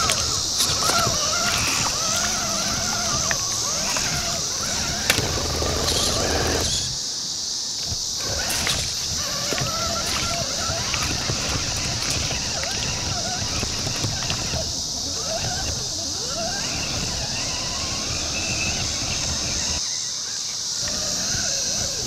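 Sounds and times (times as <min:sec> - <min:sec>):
toy car motor whining: 0:00.0 - 0:07.0, 0:07.8 - 0:22.0
tyres clacking on stones: 0:00.0 - 0:07.0
water splashing: 0:00.0 - 0:07.0, 0:07.8 - 0:17.5.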